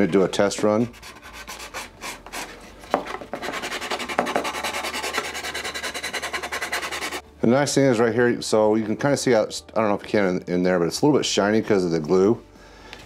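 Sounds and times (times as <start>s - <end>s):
sanding stick rubbing plastic: 0.0s - 7.2s.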